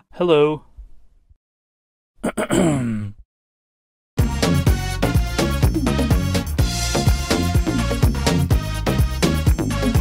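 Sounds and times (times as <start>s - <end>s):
music with steady beat: 4.2s - 10.0s
sustained bass line: 4.2s - 10.0s.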